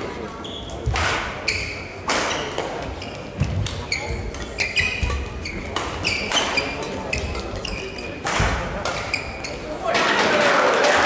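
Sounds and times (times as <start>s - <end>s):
shoes squeaking on court: 0.4s - 8.3s, 8.9s - 9.7s
racket striking shuttlecock: 0.8s - 1.4s, 2.0s - 2.8s, 3.4s - 9.1s.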